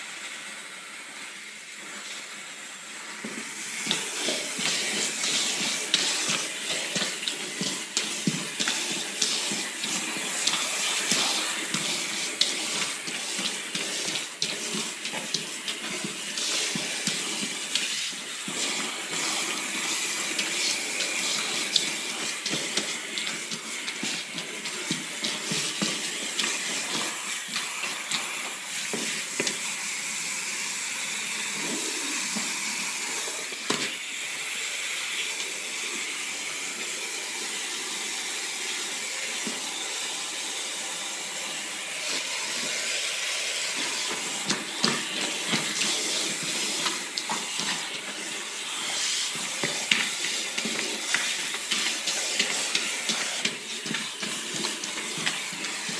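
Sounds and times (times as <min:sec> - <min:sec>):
hose spraying water on rug: 0:00.0 - 0:55.9
water splashes: 0:03.6 - 0:29.6, 0:42.1 - 0:55.9.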